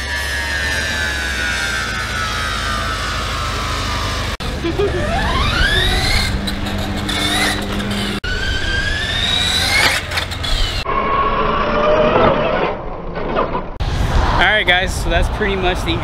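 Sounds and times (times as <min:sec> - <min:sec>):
radio-controlled car motor whining: 0:00.0 - 0:10.8.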